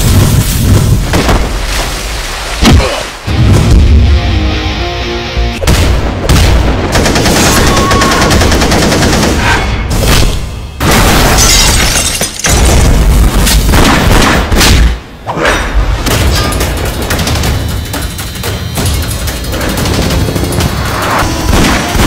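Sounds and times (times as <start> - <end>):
boom effects: 2.6 - 4.2
loud trailer music: 3.3 - 6.2, 19.5 - 22.0
rapid gunfire: 5.7 - 9.6, 13.7 - 14.6, 16.1 - 22.0.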